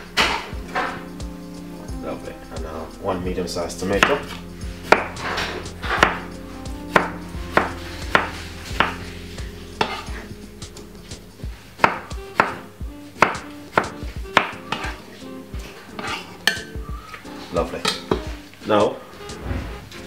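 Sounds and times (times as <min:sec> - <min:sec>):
knife chopping on wooden board: 0:04.8 - 0:06.3, 0:06.9 - 0:09.0, 0:11.8 - 0:12.6, 0:13.2 - 0:14.9.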